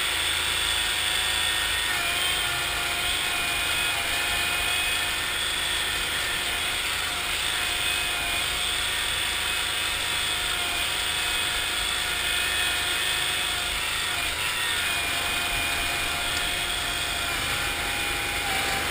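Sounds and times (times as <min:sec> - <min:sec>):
tracked vehicle engine running: 0:00.0 - 0:18.9.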